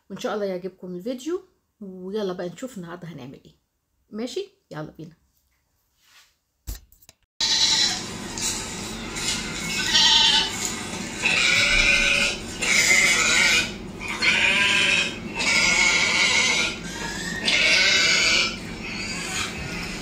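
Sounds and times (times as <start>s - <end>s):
sheep bleating: 7.4s - 8.0s, 9.8s - 10.5s, 11.2s - 16.8s, 17.4s - 18.6s.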